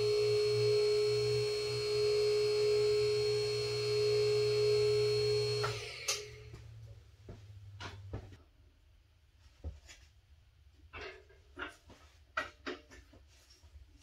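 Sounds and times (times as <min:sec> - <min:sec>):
hydraulic pump motor humming: 0:00.0 - 0:06.9.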